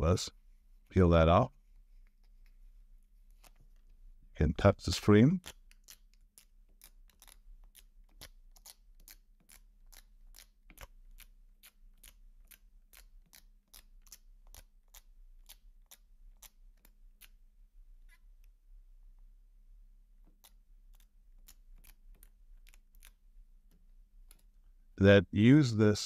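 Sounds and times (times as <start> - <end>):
sticker dabbing on glass screen: 20.2 - 24.7.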